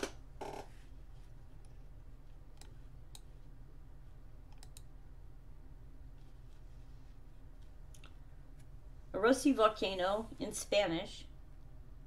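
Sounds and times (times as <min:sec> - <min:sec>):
low steady hum: 0:00.0 - 0:12.0
computer mouse clicks: 0:02.5 - 0:03.3, 0:04.5 - 0:04.9.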